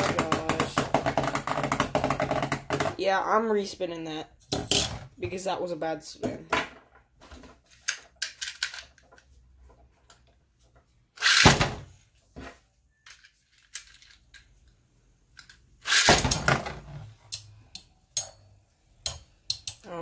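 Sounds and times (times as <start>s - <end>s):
launcher zip: 11.2s - 11.7s, 15.8s - 16.4s.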